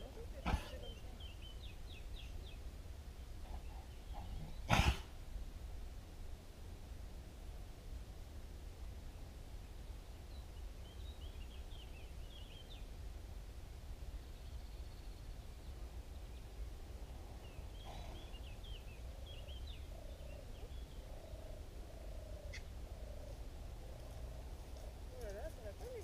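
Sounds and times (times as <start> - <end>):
small birds chirping: 0.0 - 5.1, 9.6 - 13.0, 14.0 - 26.0
horse coughing: 0.4 - 1.0, 4.2 - 5.1, 17.8 - 18.3.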